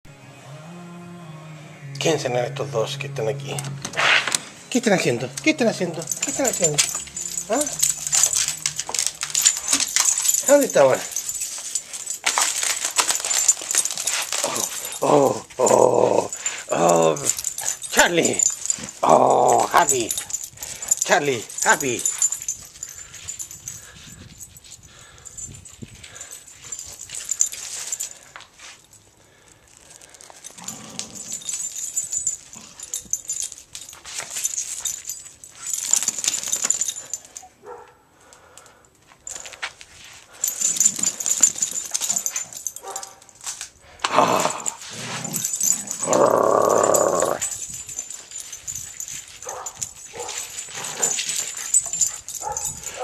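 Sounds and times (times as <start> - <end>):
dogs barking and growling: 3.8 - 23.5, 30.0 - 33.6, 40.4 - 43.4, 44.0 - 53.0.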